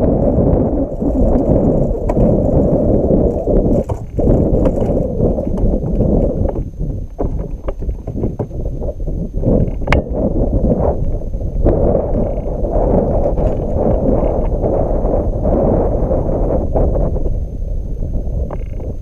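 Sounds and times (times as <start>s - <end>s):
wind buffeting microphone: 0.0s - 19.0s
kayak gear clicks and knocks: 3.7s - 8.6s.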